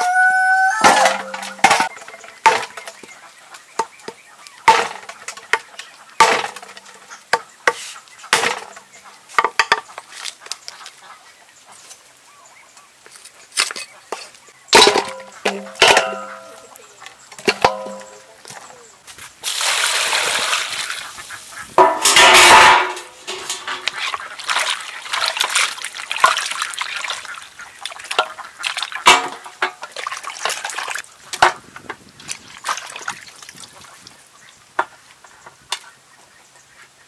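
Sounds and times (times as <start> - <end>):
pieces knocking in metal basin: 0.8 - 3.0, 4.7 - 7.0, 14.7 - 16.8, 17.4 - 18.6, 21.8 - 24.0, 29.0 - 29.9.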